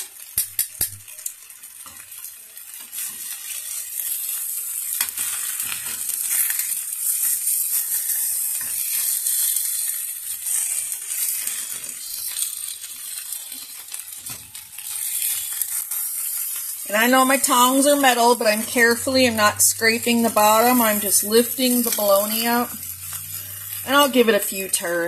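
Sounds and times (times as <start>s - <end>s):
meat sizzling in a pan: 0.0s - 25.0s
metal tongs clicking on pan: 0.2s - 10.0s, 21.4s - 22.0s.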